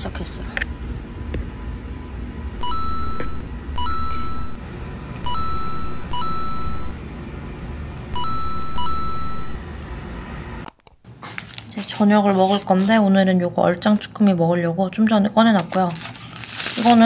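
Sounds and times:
two-tone beeping: 2.6s - 4.6s, 5.2s - 7.0s, 8.1s - 9.6s.

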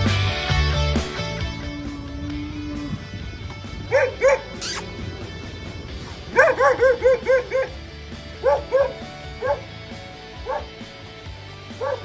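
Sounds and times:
dog barking: 3.9s - 4.8s, 6.3s - 7.8s, 8.4s - 9.7s, 10.4s - 10.7s, 11.8s - 12.0s.

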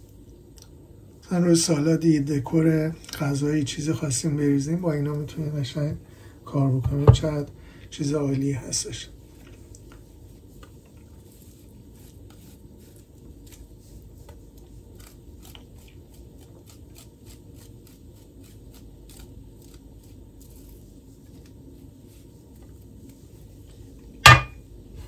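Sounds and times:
vegetable rasping on grater: 11.2s - 21.5s.

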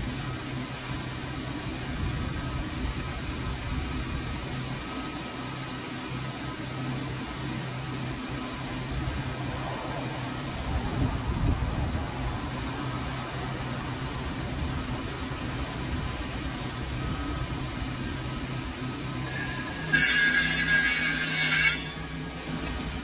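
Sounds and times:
low engine-like hum: 0.0s - 20.9s, 21.8s - 23.0s.

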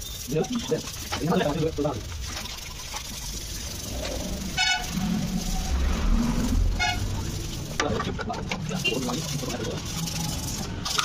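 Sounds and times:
passing vehicle rumble: 3.7s - 7.8s.

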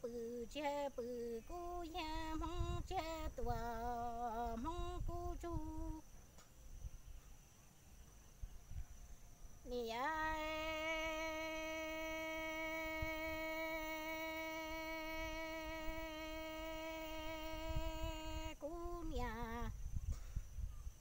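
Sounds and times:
person singing folk poetry: 0.0s - 6.1s, 9.6s - 19.8s.

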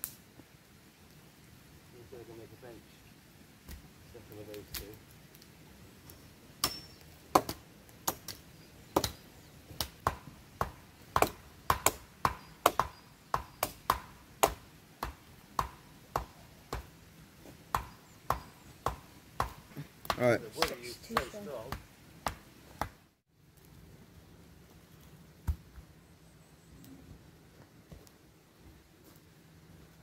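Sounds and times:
chopping strikes on wood: 6.6s - 9.2s, 9.8s - 16.9s, 17.7s - 23.0s.

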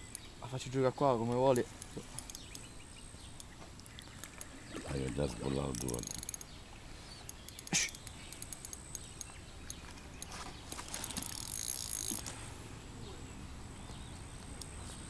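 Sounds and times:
fishing reel drag ticking: 1.3s - 2.7s, 3.3s - 12.4s.

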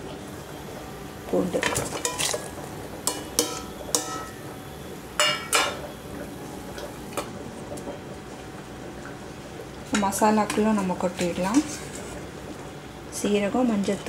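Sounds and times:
steel plate clinking on pressure cooker: 3.1s - 4.3s.

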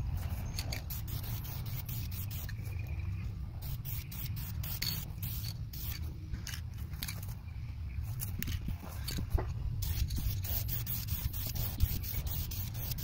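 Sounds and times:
aerosol spray can hissing: 0.8s - 2.5s, 3.6s - 6.0s, 9.8s - 13.0s.

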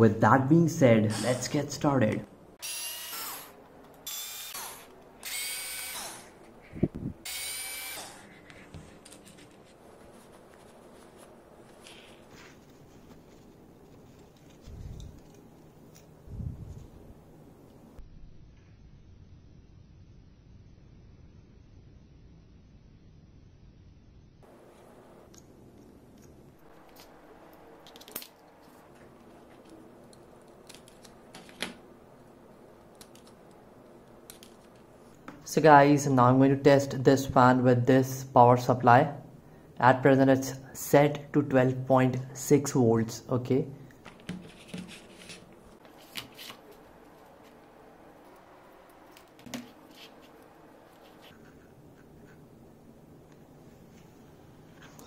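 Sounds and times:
cordless screwdriver motor: 2.6s - 6.3s, 7.3s - 8.2s.

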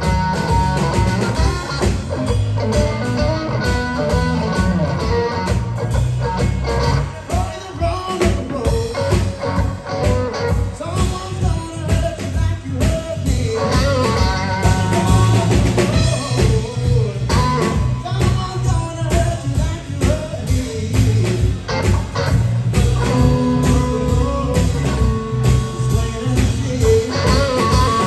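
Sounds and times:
bass guitar: 0.0s - 28.0s
drum kit beat: 0.0s - 28.0s
electric guitar: 0.0s - 28.0s
young man singing: 6.2s - 28.0s.

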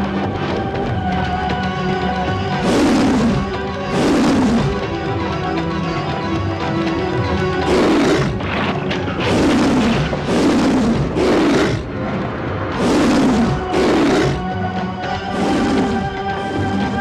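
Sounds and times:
dramatic background music: 0.0s - 17.0s
lion roar sound effect: 2.6s - 4.9s, 7.6s - 12.0s, 12.7s - 14.5s, 15.2s - 17.0s.

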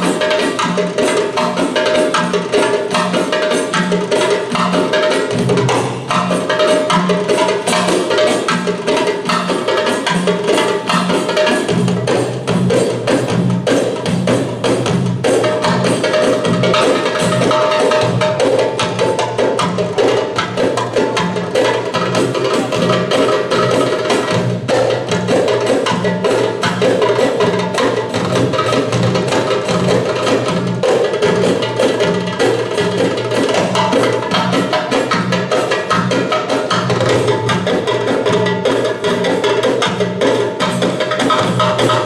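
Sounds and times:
goblet drums and tambourine: 0.0s - 42.0s
steady low drum beat: 0.0s - 42.0s.

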